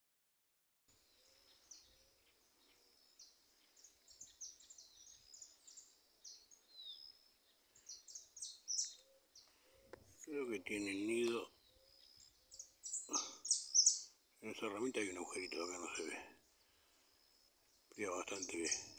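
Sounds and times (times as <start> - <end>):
finch singing high chirps: 1.1 - 9.6, 10.2 - 16.4, 17.8 - 18.9.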